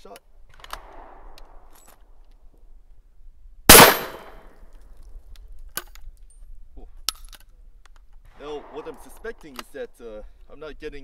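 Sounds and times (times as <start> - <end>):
shotgun action metallic clicks: 3.7 - 4.3
shotgun blast: 3.7 - 4.3.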